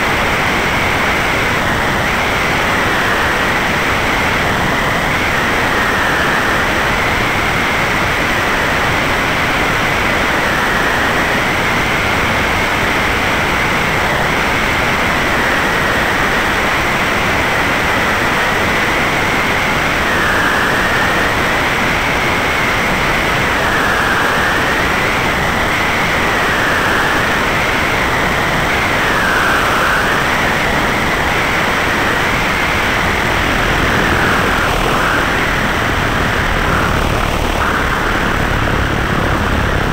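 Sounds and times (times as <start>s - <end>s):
aircraft engine and propeller: 0.0s - 39.9s
high whine: 0.0s - 39.9s
airflow rushing over camera: 31.4s - 39.9s.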